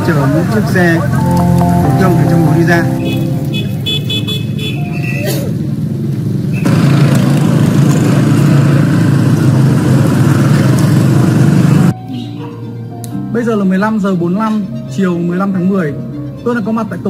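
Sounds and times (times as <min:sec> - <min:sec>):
background music: 0:00.0 - 0:04.5, 0:12.0 - 0:17.0
motor vehicle engine: 0:00.0 - 0:12.0
traffic noise: 0:00.0 - 0:12.0.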